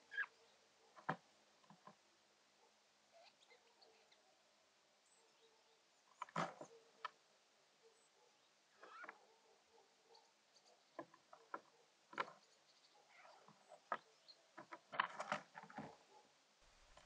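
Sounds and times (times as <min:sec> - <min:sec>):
jay calling softly: 0:00.0 - 0:00.6, 0:08.8 - 0:09.2.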